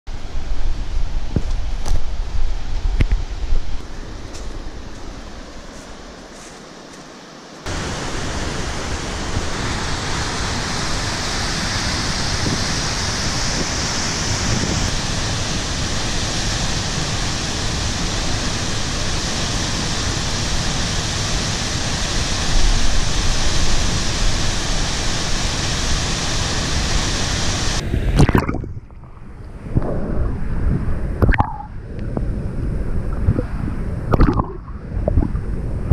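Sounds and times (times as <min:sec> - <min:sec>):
waterfall roaring: 0:07.6 - 0:27.8.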